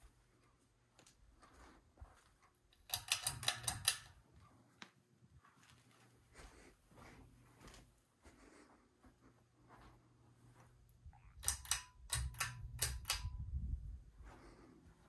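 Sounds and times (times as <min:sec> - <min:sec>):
pull-chain switch clicking: 0:02.8 - 0:04.2, 0:11.4 - 0:13.4
low rumble: 0:12.7 - 0:14.5.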